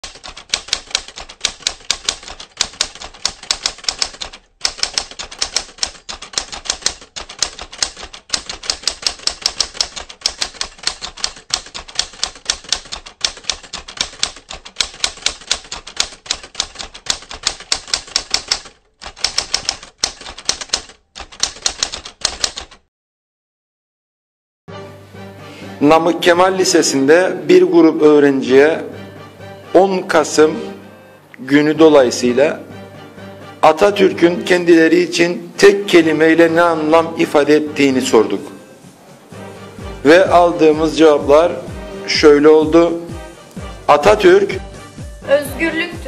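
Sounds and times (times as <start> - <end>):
typewriter key clicks: 0.0 - 22.8.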